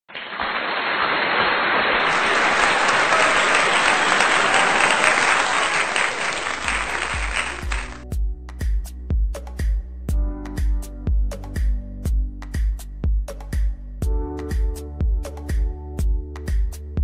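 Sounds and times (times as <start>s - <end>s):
crowd applause: 0.1s - 8.0s
electronic dance music with heavy bass: 6.6s - 8.0s.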